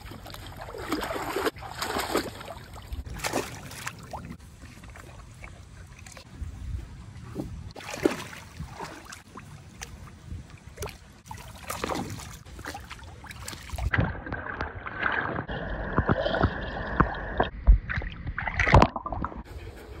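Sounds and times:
dogs splashing in water: 0.0 - 6.3, 7.8 - 10.1, 10.8 - 14.0
underwater bubbling: 13.2 - 19.5.

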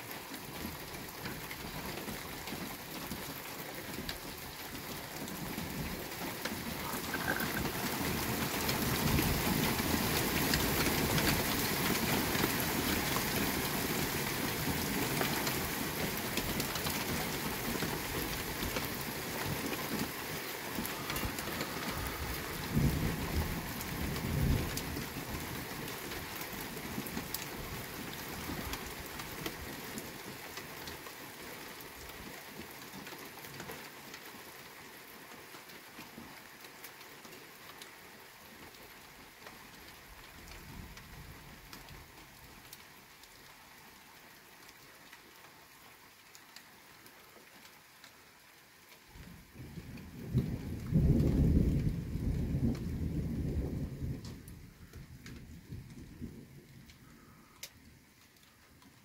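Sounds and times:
rain on a wet street: 0.0 - 59.0
thunder rumble: 6.6 - 11.6, 20.7 - 25.2, 49.6 - 57.3.

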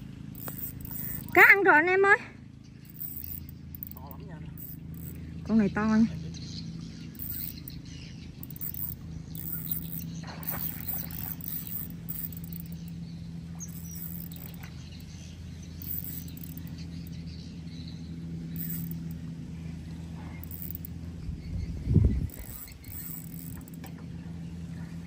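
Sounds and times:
fishing reel and line noise: 0.0 - 1.6, 2.8 - 5.2, 6.9 - 19.2, 20.2 - 20.9, 22.3 - 23.9
low motor hum: 0.0 - 25.0.

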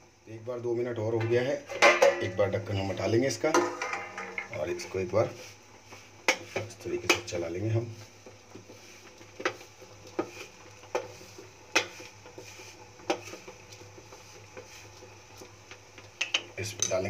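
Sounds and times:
spoon stirring on steel plate: 8.5 - 15.5.

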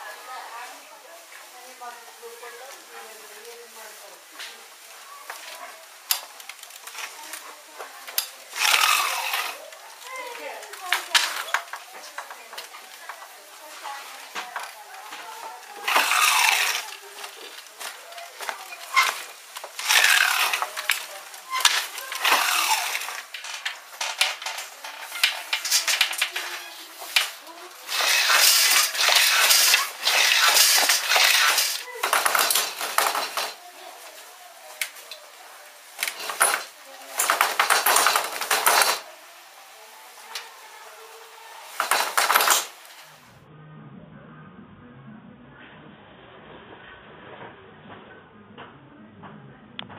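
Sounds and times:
wooden handloom rattling: 5.3 - 33.6, 35.9 - 39.1, 41.6 - 43.1
shuttle whizzing across loom: 8.6 - 9.6, 15.8 - 17.0, 18.7 - 23.4, 24.3 - 33.6, 41.8 - 42.8.

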